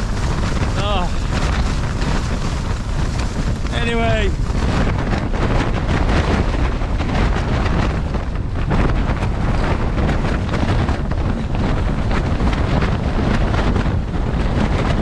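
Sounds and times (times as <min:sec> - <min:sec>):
tent fabric flapping in wind: 0:00.0 - 0:15.0
wind rumble on microphone: 0:00.0 - 0:15.0.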